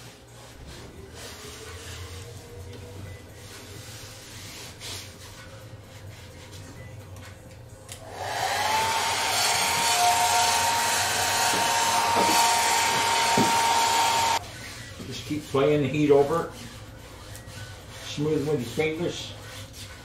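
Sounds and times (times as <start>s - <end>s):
hair dryer blowing: 8.0s - 14.4s.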